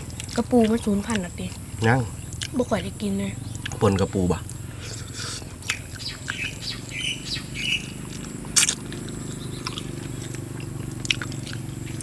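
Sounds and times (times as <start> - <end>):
lip smacking and chewing: 0.0 - 0.9, 2.2 - 2.6, 3.5 - 3.8, 5.2 - 12.0
steady low hum: 0.0 - 12.0.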